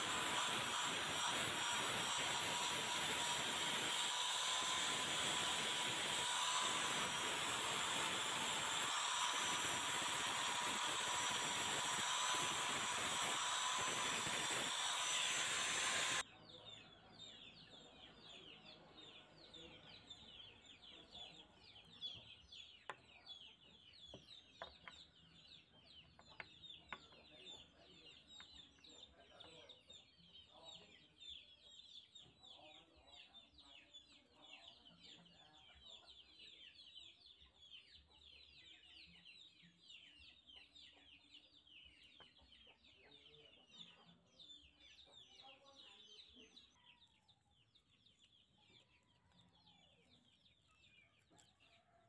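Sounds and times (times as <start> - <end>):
angle grinder grinding metal: 0.0 - 16.2.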